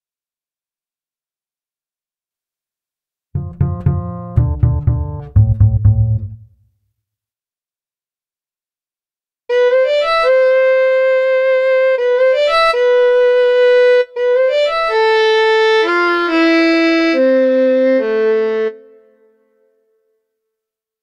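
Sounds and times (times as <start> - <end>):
solo violin phrase: 3.4 - 6.4.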